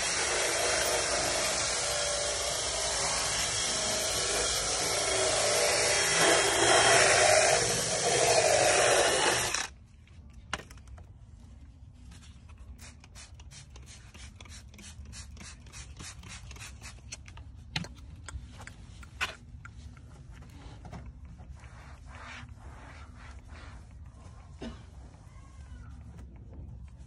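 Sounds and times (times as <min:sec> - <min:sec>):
cloth rubbing on car door panel: 0:21.3 - 0:25.3.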